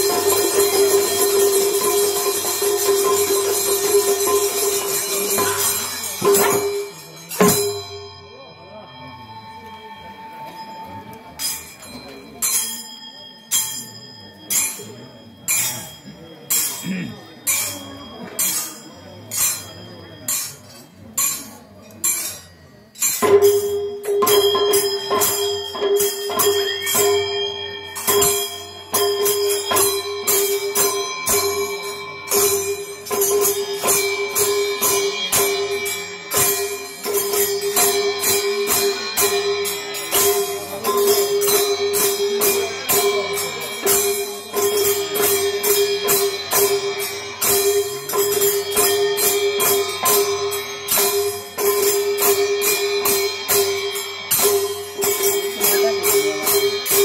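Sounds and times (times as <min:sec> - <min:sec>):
steady held tone: 0:00.0 - 0:57.0
metallic clashing: 0:17.5 - 0:31.8.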